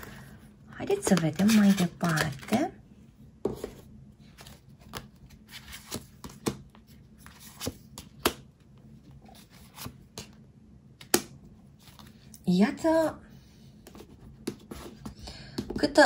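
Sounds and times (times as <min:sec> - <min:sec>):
cards slapping on a table: 0:07.6 - 0:08.4.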